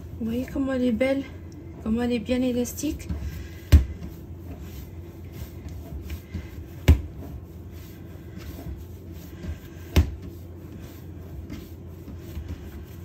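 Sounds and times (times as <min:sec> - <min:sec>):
hands kneading dough: 0:00.0 - 0:13.0
dough thumping on surface: 0:02.9 - 0:04.8, 0:05.6 - 0:07.4, 0:09.4 - 0:10.4.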